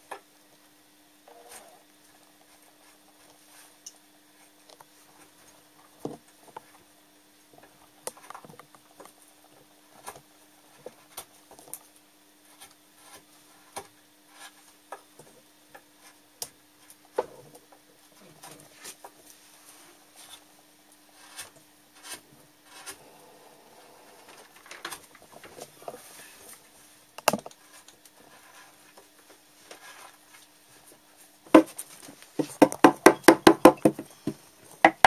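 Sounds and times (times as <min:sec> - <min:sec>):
faint steady hum: 0:00.0 - 0:35.0
wood carving clicks and scrapes: 0:21.2 - 0:23.0.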